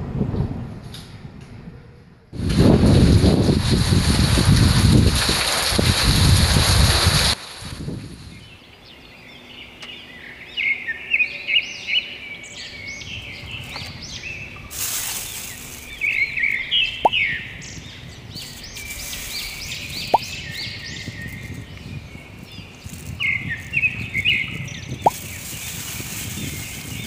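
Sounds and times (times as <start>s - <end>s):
birds chirping: 8.2s - 27.0s.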